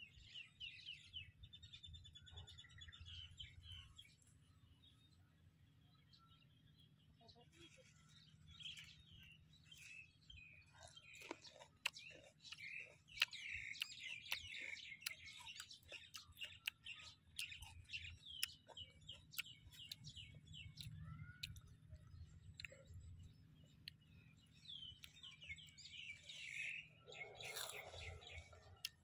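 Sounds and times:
small birds chirping: 0.0 - 29.0
raw vegetables being chewed: 7.6 - 29.0.

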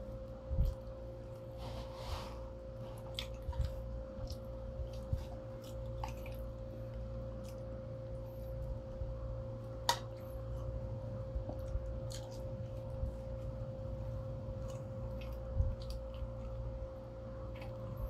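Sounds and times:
steady hum: 0.0 - 18.0
chewing and mouth smacks: 3.0 - 8.7, 11.4 - 13.5, 14.5 - 16.8.

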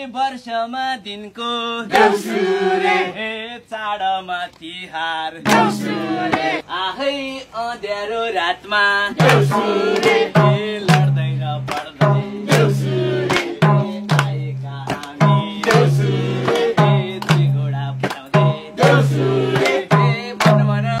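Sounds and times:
group singing: 1.6 - 3.4, 5.4 - 21.0
hand clapping: 2.0 - 2.2, 5.5 - 6.6, 9.2 - 21.0
hand drum beat: 5.5 - 6.6, 9.2 - 21.0.

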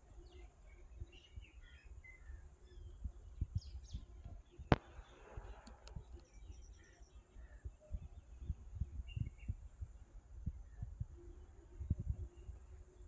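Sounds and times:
birds chirping faintly: 0.0 - 13.0
sharp click: 5.6 - 6.2.

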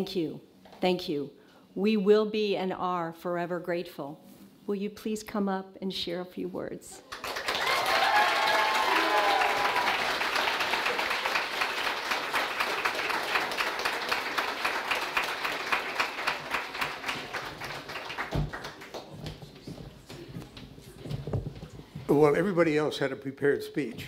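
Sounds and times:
audience applauding: 7.1 - 19.4.

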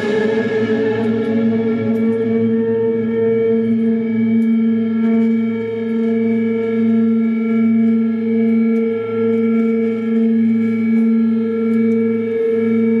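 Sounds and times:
electric guitar droning note: 0.0 - 9.3.

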